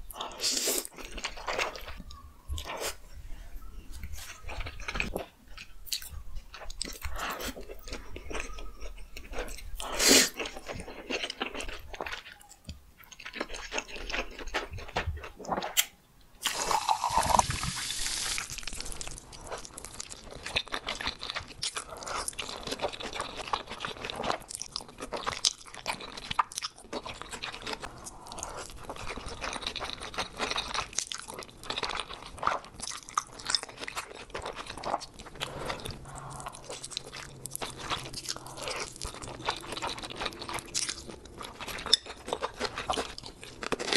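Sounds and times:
noodles being slurped and chewed: 16.4 - 43.9.

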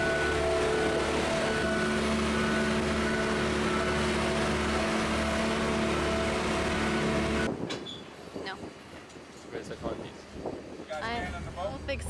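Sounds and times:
lift engine droning: 0.0 - 7.7.

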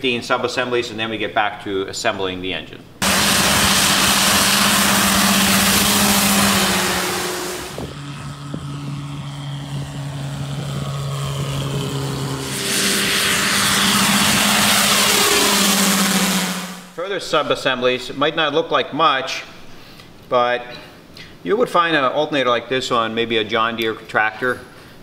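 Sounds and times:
propeller plane engine: 3.0 - 17.0.

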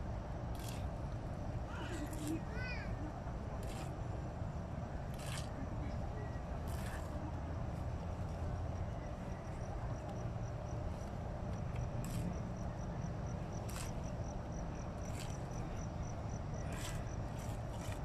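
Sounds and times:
trowels scraping wet cement: 0.5 - 1.0, 3.6 - 4.0, 5.1 - 5.6, 6.6 - 7.2, 16.6 - 18.0.

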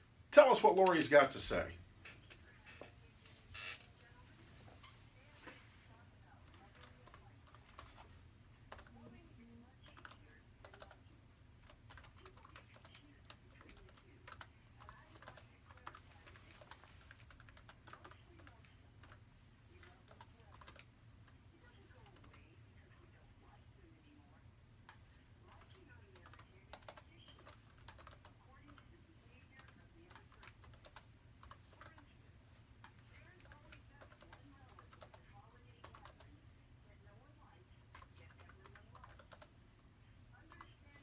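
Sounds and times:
low steady hum: 0.0 - 41.0
laptop keyboard typing: 6.4 - 22.6, 24.8 - 32.2, 32.8 - 36.4, 37.9 - 39.6, 40.4 - 41.0.

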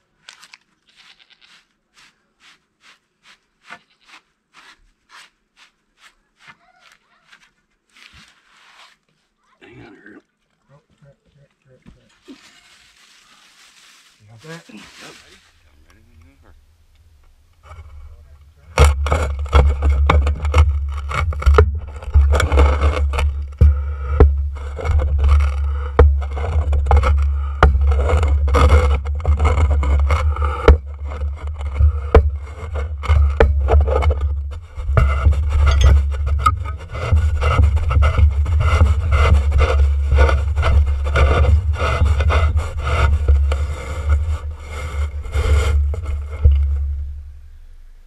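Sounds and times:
scraping: 12.0 - 48.0
rhythmic rubbing strokes: 17.6 - 47.4.

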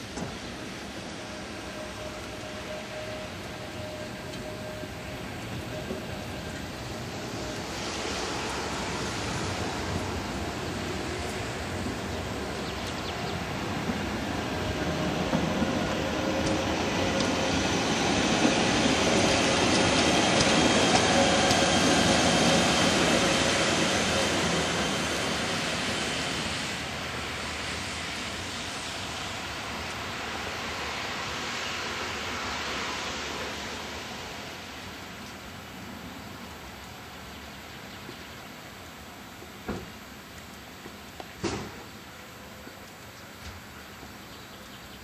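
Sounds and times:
high steady whine: 0.0 - 35.1
electric train passing: 0.0 - 41.0
train wheel noise: 0.0 - 45.0.

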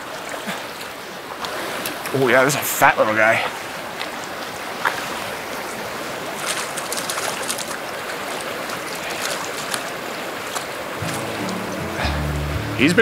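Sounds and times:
stream rushing: 0.0 - 13.0
light splashes in water: 6.2 - 11.7.

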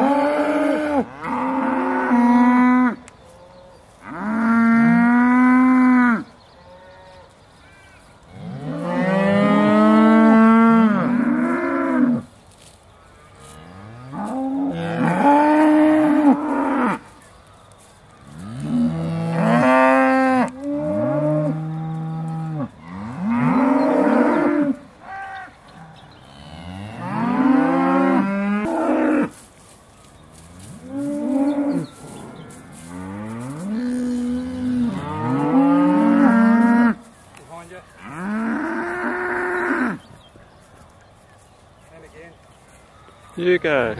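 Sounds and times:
cows mooing: 0.0 - 12.3, 13.4 - 17.1, 18.3 - 29.4, 30.5 - 37.1, 38.0 - 40.0.

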